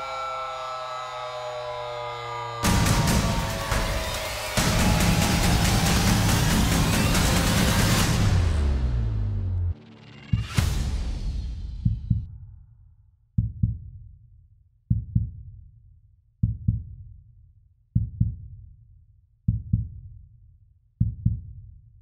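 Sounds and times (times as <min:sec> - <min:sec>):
heartbeat double thump: 0:11.8 - 0:12.3, 0:21.0 - 0:21.5.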